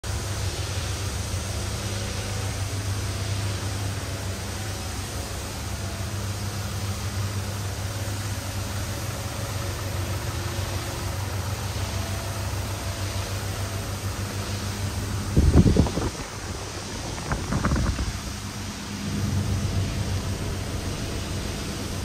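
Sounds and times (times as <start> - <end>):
low machine hum: 0.0 - 22.0
rough rumbling burst: 14.7 - 20.6.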